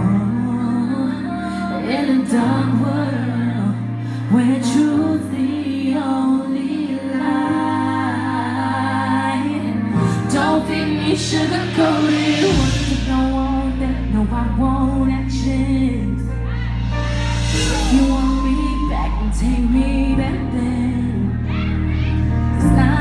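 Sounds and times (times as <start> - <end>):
woman singing into microphone: 0.0 - 23.0
slow backing track with bass: 7.3 - 23.0.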